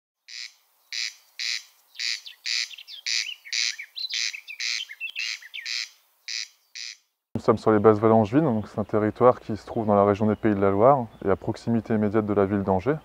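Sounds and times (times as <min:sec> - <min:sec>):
thin bird chirps: 0:00.2 - 0:07.1
corncrake rasping call: 0:00.3 - 0:07.1.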